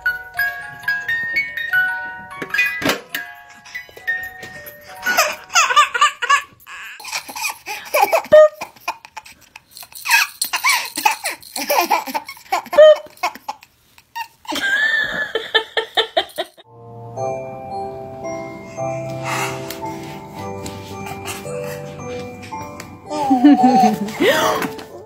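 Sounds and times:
baby laughing: 5.0 - 16.6, 23.0 - 25.0.

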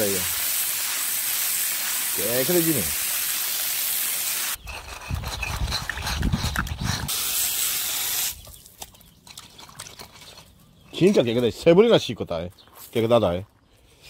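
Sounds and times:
water running and splashing: 0.0 - 4.6.

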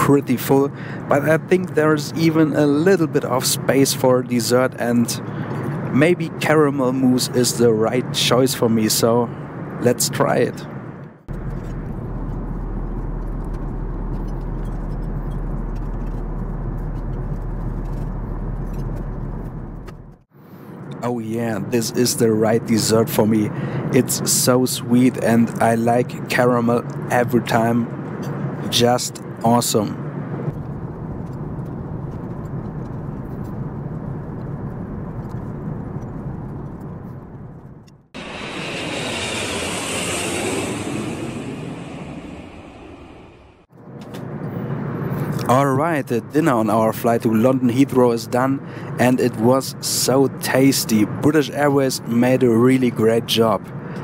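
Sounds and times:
airplane cabin noise: 0.0 - 43.7
airflow and engine drone: 0.0 - 54.0
deep low hum: 11.3 - 20.2, 38.2 - 43.7
bright hissy rush: 38.2 - 43.7.

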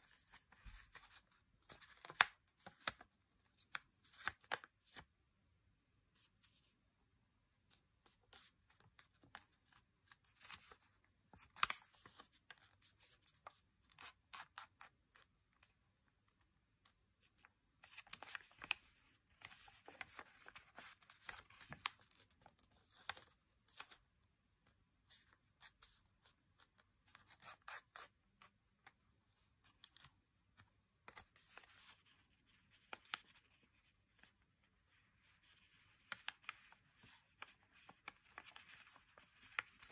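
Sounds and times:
paper crackling and rustling: 0.1 - 5.1, 8.3 - 15.3, 16.3 - 24.0, 28.9 - 39.9.

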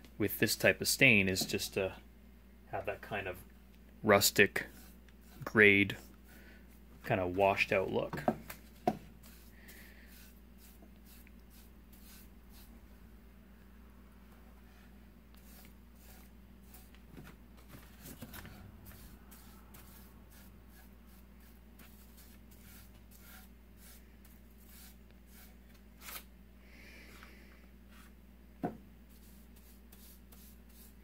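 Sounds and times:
paintbrush swishing on wood: 9.2 - 12.8, 15.4 - 17.0, 17.8 - 25.6, 29.1 - 31.0.

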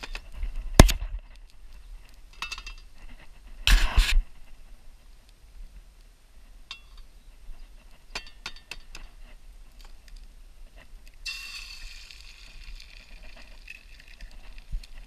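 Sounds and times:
sizzling hiss: 10.1 - 15.0.

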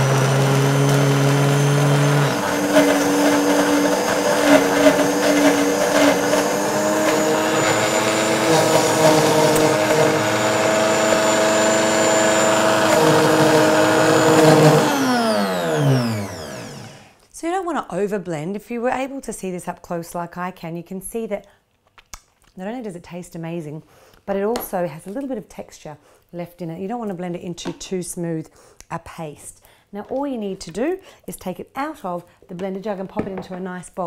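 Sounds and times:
blender motor running: 0.0 - 17.2.

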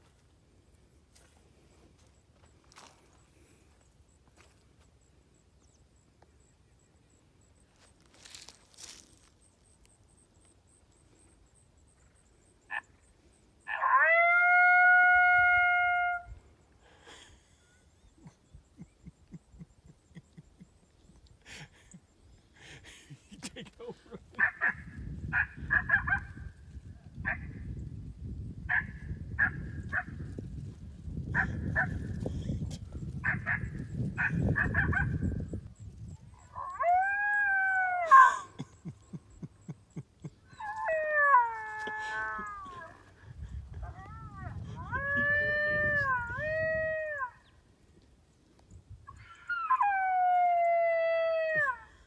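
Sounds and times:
animal wailing calls: 36.5 - 38.6, 49.1 - 50.4
animal yelps: 36.5 - 38.7, 49.1 - 50.4.

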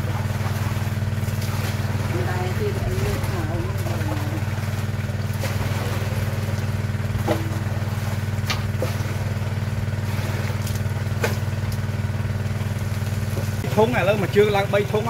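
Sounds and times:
small engine running steadily: 0.0 - 15.0.

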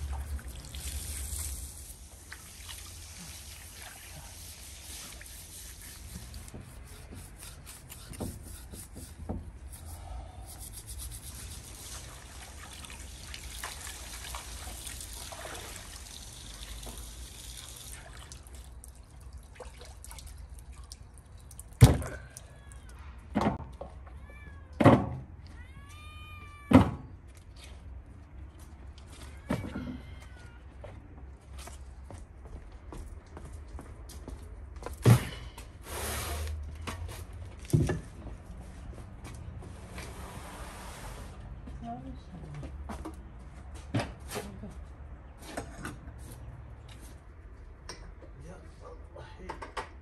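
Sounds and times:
water sloshing in metal basin: 11.5 - 22.5.

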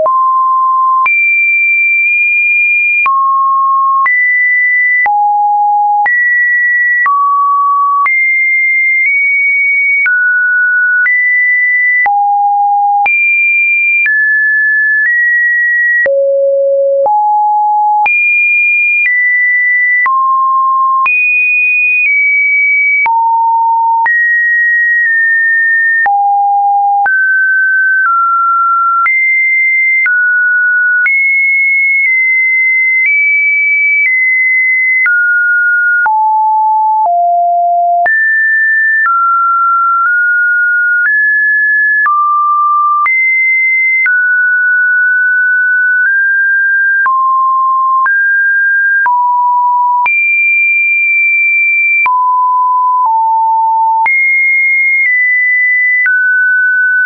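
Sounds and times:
sine-wave test beeps: 0.0 - 44.4, 46.9 - 57.0.

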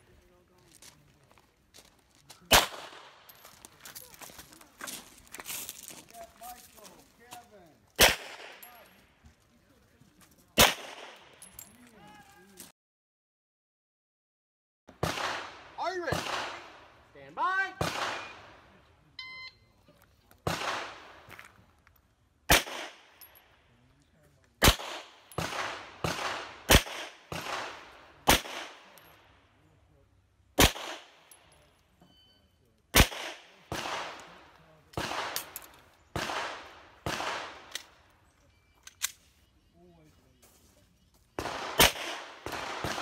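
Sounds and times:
pistol shots with echo: 2.5 - 3.4, 8.0 - 8.9, 10.6 - 11.5, 15.0 - 17.0, 17.8 - 18.7, 20.4 - 21.3, 22.5 - 23.4, 24.6 - 29.2, 30.6 - 31.6, 32.9 - 38.0, 41.4 - 43.0.

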